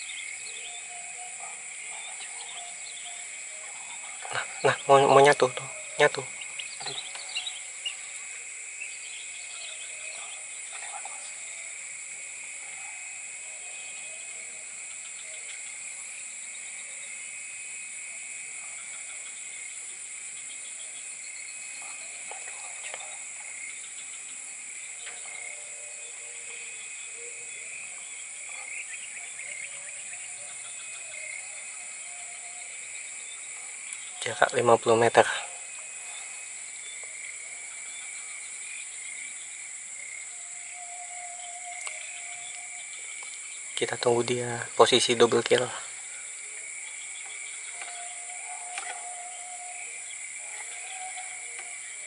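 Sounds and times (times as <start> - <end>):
insects buzzing drone: 0.0 - 52.0.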